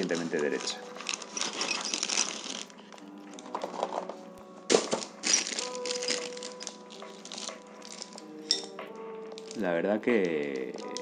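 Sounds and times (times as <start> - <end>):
cardboard box rustling: 0.0 - 2.7.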